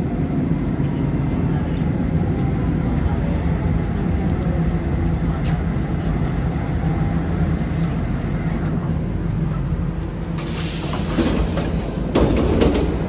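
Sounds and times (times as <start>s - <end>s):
metro train rumbling: 0.0s - 13.0s
air brake hiss: 10.4s - 11.2s.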